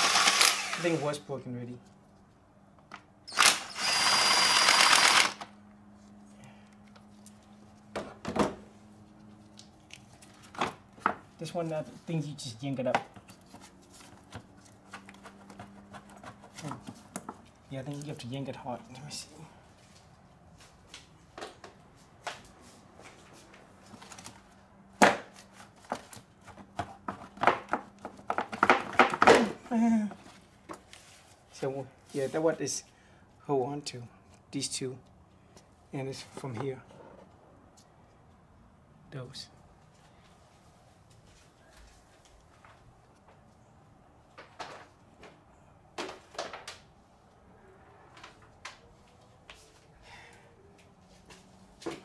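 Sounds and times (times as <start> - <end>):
ratchet wrench ratcheting: 3.3 - 5.4.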